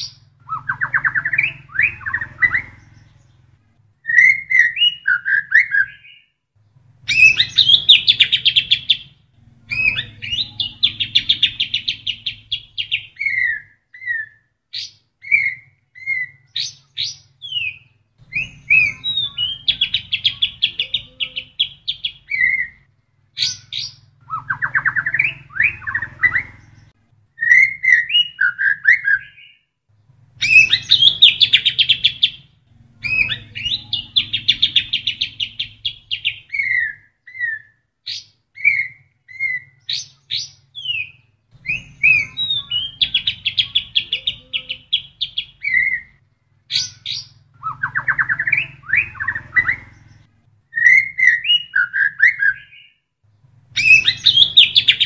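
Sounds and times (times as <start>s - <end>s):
songbird singing: 0.0s - 55.0s
low hum: 29.9s - 36.5s.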